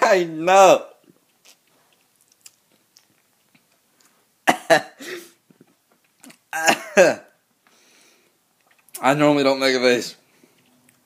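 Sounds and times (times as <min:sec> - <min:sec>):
man coughing and sputtering: 0:04.4 - 0:05.4, 0:06.5 - 0:07.3.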